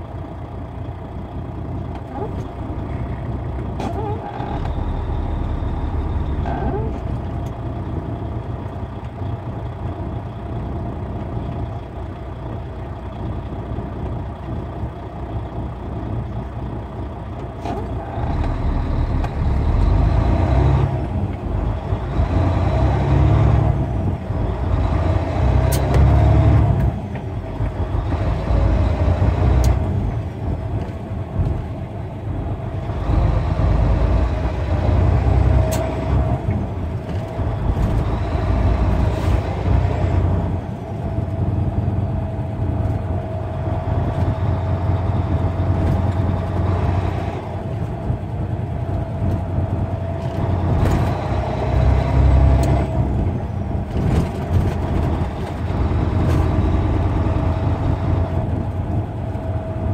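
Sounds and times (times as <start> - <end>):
road noise: 0.0 - 59.9
truck engine running: 0.0 - 59.9.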